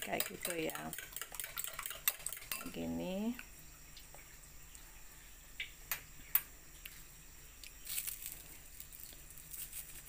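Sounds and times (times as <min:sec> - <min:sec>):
plastic wrap crinkling: 0:07.8 - 0:10.0.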